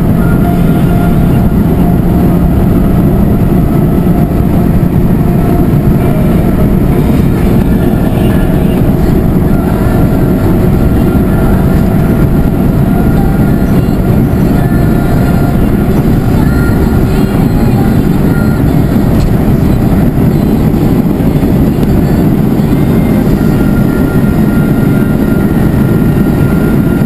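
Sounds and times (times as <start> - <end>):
car engine at high revs: 0.0 - 27.0
wind and road noise: 0.0 - 27.0.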